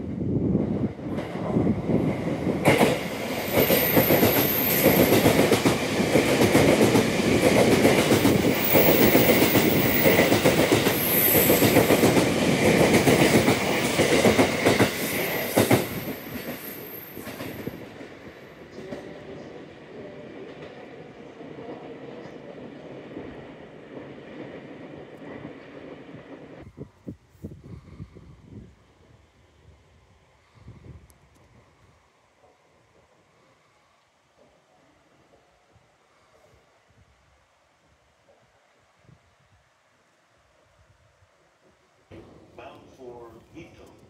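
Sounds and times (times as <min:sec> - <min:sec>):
train wheels clattering: 0:02.6 - 0:19.1.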